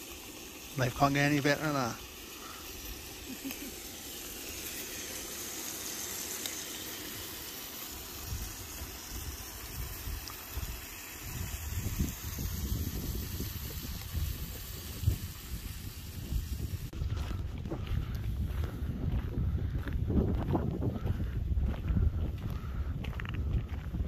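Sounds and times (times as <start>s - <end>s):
camping stove hissing: 0.0s - 19.8s
wind rumbling on microphone: 8.2s - 24.0s.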